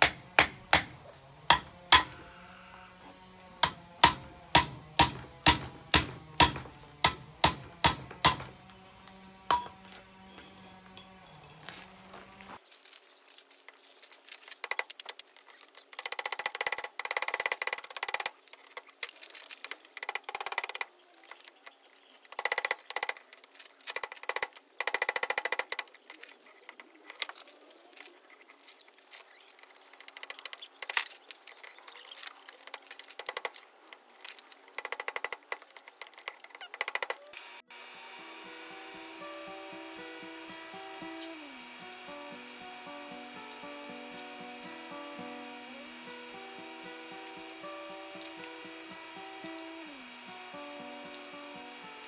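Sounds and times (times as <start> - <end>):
hammer striking steel on anvil: 0.0 - 2.3, 3.6 - 8.6, 9.5 - 10.0.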